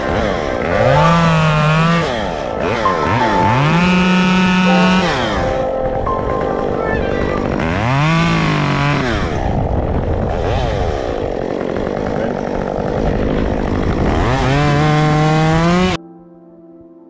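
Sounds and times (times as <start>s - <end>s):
chainsaw revving and cutting: 7.5s - 16.0s.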